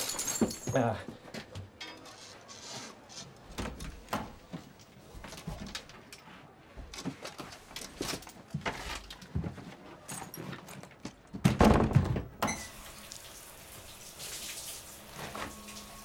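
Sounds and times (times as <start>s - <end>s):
heavy door thud: 11.4s - 12.4s
tap water running: 12.5s - 16.0s.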